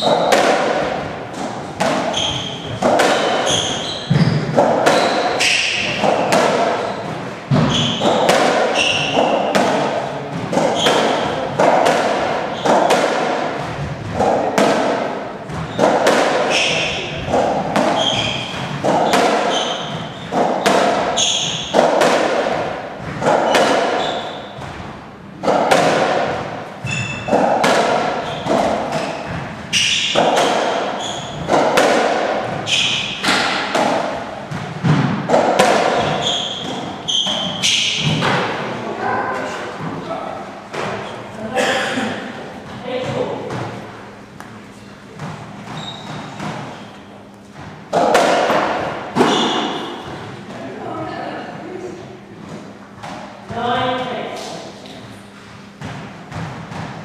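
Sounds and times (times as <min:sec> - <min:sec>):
ball thudding off rackets and walls: 0:00.0 - 0:38.6, 0:47.5 - 0:50.2
shoes squeaking on wooden floor: 0:02.0 - 0:09.5, 0:15.6 - 0:15.9, 0:17.8 - 0:21.8, 0:23.2 - 0:24.8, 0:26.8 - 0:27.4, 0:28.2 - 0:31.6, 0:36.0 - 0:38.2, 0:45.6 - 0:47.6.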